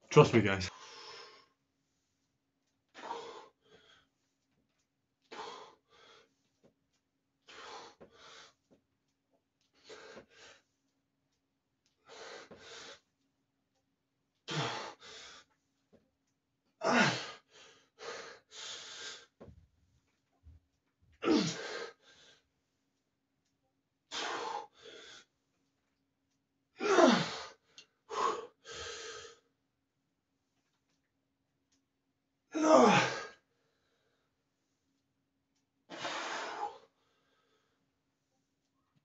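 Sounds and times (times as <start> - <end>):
man breathing hard: 2.9 - 4.4, 5.2 - 6.6, 7.4 - 8.7, 12.0 - 13.1, 14.5 - 15.5, 16.8 - 19.4, 21.3 - 22.4, 24.1 - 25.4, 27.0 - 29.5, 35.9 - 37.8.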